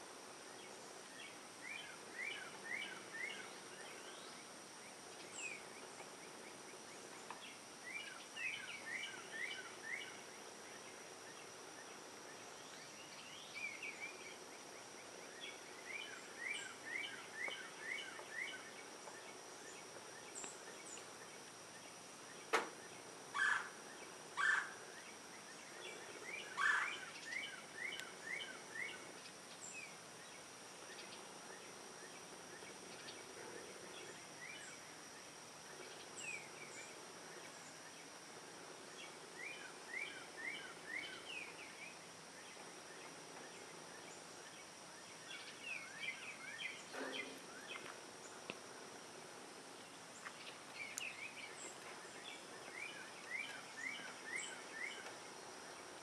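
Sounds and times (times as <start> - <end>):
faint high whine: 0.0 - 56.0
woodpecker calling: 23.3 - 25.1, 25.8 - 29.9.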